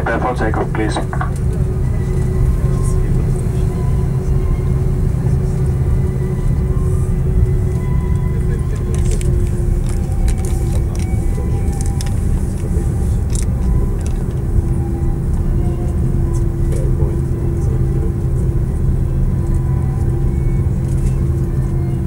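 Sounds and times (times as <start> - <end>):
steady hum: 0.0 - 8.6
jet engines low rumble: 0.0 - 22.0.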